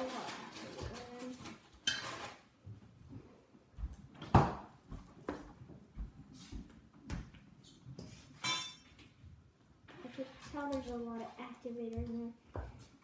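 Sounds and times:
utensil stirring thick slime: 0.0s - 1.6s.

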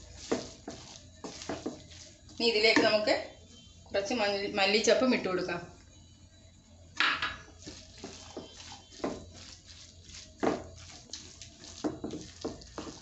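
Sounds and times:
spatula scraping a pan: 0.0s - 2.2s, 7.6s - 13.0s.

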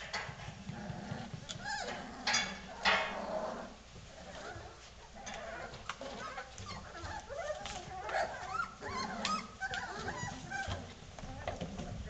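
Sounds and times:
puppies whining and yelping: 1.0s - 2.5s, 4.2s - 11.8s.

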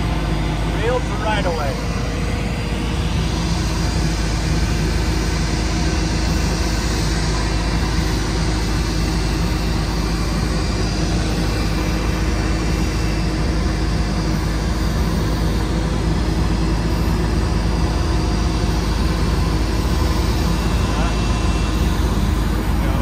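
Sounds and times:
jet engine noise: 0.0s - 23.0s
tug engine droning: 0.0s - 23.0s.

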